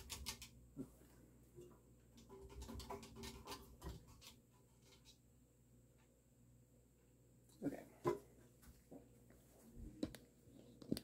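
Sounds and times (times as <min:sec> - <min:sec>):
ceiling fan clicking and rattling: 0:00.0 - 0:00.8, 0:01.5 - 0:05.3.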